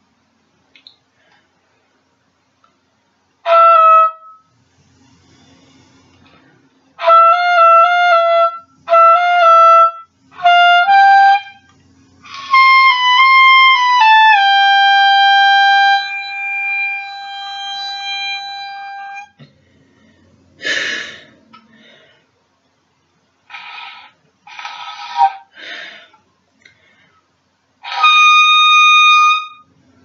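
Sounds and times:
solo oboe playing: 3.4s - 4.5s, 7.0s - 19.4s, 27.8s - 29.7s.

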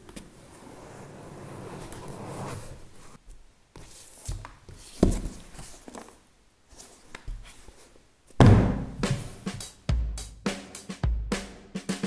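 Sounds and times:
cardboard box thunks: 8.4s - 9.3s.

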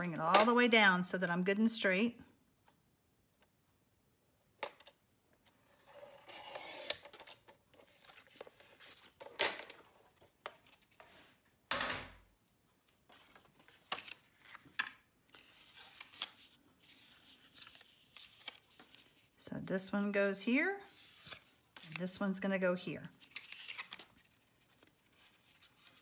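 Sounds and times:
card stock rustling: 6.3s - 9.4s, 13.1s - 19.4s, 20.9s - 22.2s, 23.2s - 26.0s.

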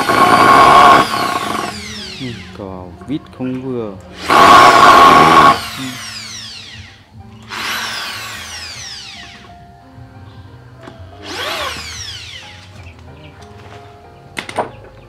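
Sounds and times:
drill running into wood: 0.0s - 2.6s, 4.2s - 9.5s, 11.2s - 12.6s
drill motor whine spinning down: 0.0s - 9.5s, 11.2s - 12.6s.

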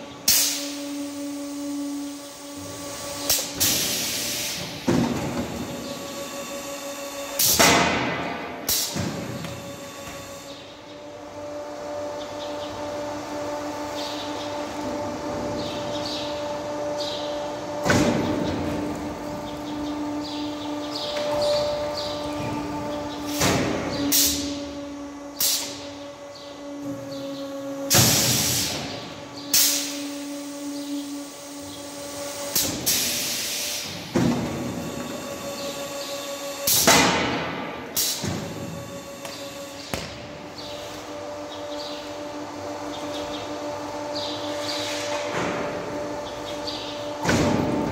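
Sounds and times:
machine motor hum: 0.0s - 47.9s
pneumatic clunks: 0.1s - 11.0s, 13.9s - 47.9s
pneumatic air hiss: 0.3s - 2.2s, 3.2s - 4.9s, 23.3s - 24.6s, 25.4s - 25.8s, 27.9s - 31.7s, 32.5s - 34.1s.

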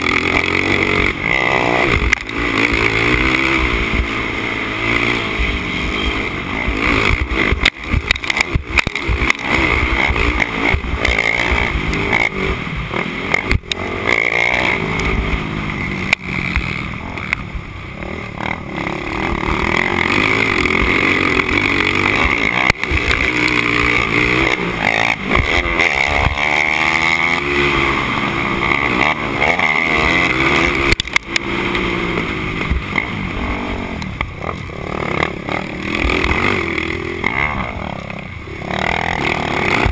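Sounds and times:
quad engine revving: 0.0s - 39.9s
chassis knocks over bumps: 39.0s - 39.9s.

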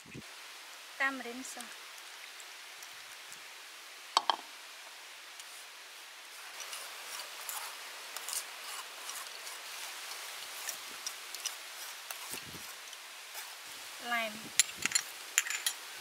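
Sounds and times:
spoon scraping metal mesh sieve: 6.4s - 13.6s.

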